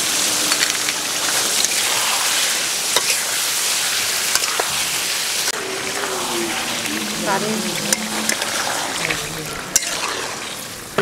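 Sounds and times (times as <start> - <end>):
food sizzling in hot oil: 0.0 - 11.0
spatula clinking and scraping pan: 7.2 - 10.6.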